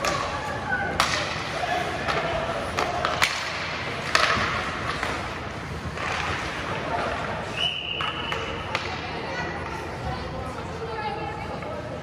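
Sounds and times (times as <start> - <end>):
hockey puck cracks: 0.0 - 7.2
skates scraping ice: 0.0 - 11.9.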